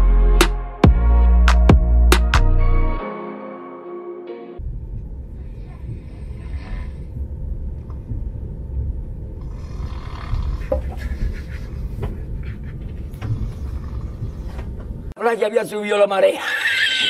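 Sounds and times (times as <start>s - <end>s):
man snoring heavily: 9.4s - 10.7s.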